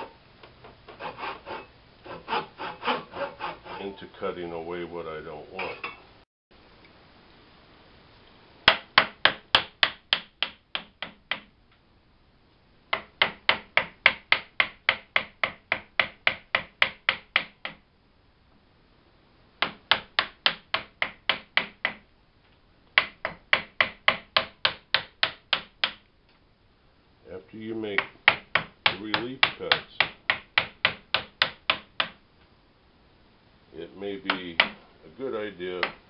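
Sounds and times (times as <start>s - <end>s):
saw cutting wood: 0.9s - 4.0s.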